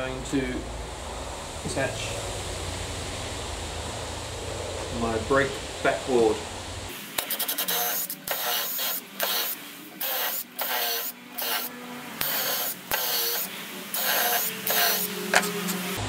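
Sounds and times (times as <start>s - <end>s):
cordless driver driving screws: 7.2s - 15.8s.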